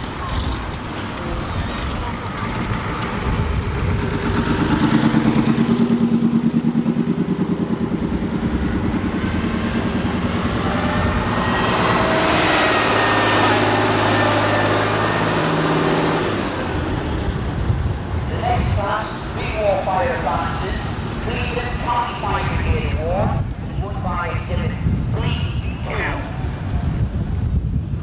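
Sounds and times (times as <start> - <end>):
fire engines driving past: 0.0 - 28.0.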